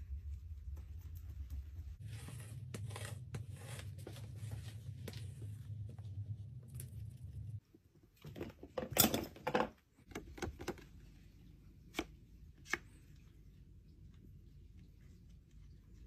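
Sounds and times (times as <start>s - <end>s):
palette knife scraping paint: 2.0s - 4.5s.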